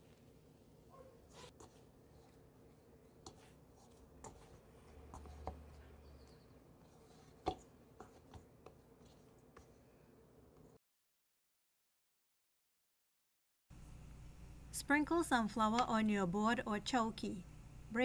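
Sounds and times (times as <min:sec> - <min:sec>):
hands kneading dough: 0:00.0 - 0:10.8.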